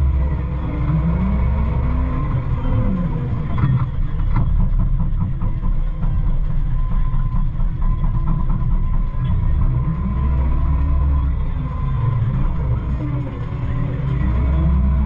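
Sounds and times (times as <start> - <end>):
loader diesel engine: 0.0 - 15.0
knocks and rattles: 3.4 - 14.6.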